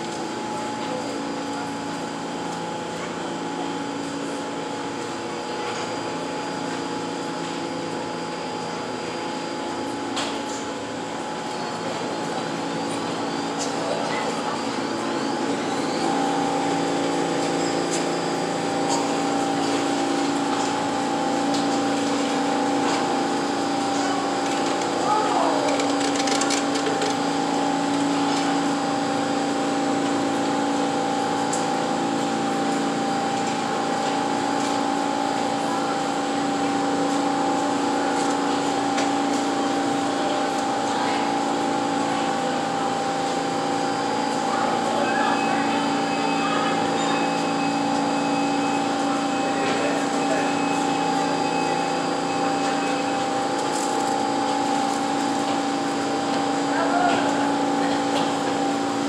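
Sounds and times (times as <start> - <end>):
subway train equipment hum: 0.0 - 59.0
faint passenger voices: 22.4 - 27.3, 35.2 - 48.2, 48.8 - 54.0, 56.4 - 58.9.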